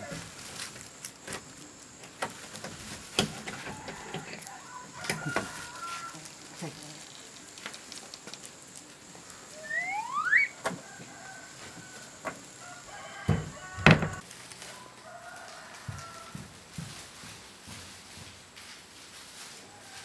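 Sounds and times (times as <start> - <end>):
plastic bag rustling: 0.0 - 9.7, 10.8 - 20.0
chicken call: 3.3 - 6.8, 9.3 - 16.4.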